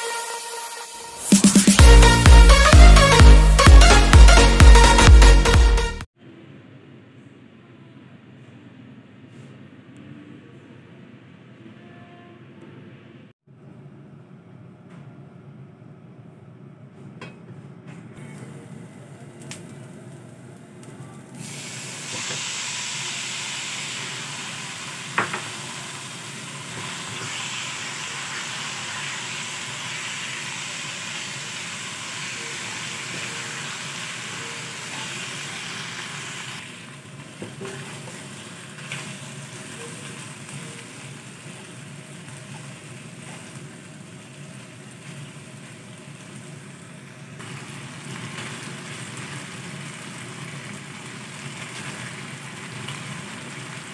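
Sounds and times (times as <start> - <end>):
chicken sizzling in a wok: 19.4 - 53.9.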